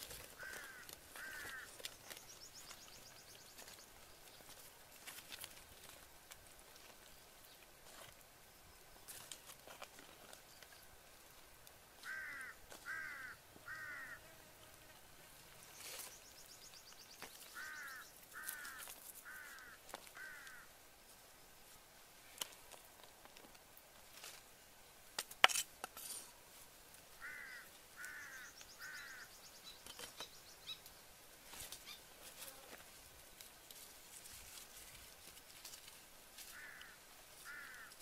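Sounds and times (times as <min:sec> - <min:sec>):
crow cawing: 0:00.4 - 0:01.8, 0:12.0 - 0:14.2, 0:17.5 - 0:20.7, 0:27.2 - 0:29.4, 0:36.5 - 0:38.0.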